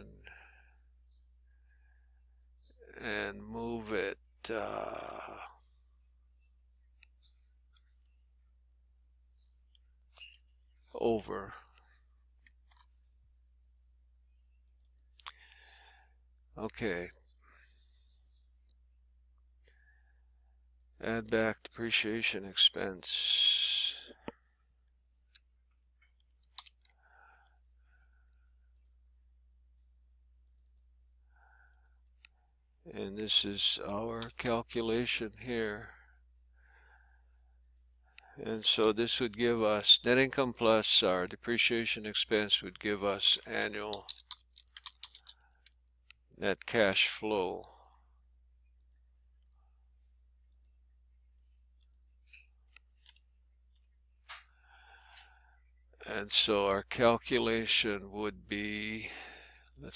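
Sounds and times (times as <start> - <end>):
computer mouse clicks: 14.6 - 15.6, 25.3 - 27.0, 28.2 - 29.0, 30.4 - 30.9, 31.7 - 32.4, 43.9 - 46.2, 48.8 - 49.6, 50.5 - 50.8, 51.4 - 54.6
keyboard and mouse clicks: 14.6 - 15.6, 25.3 - 27.0, 30.4 - 30.9, 43.4 - 46.2.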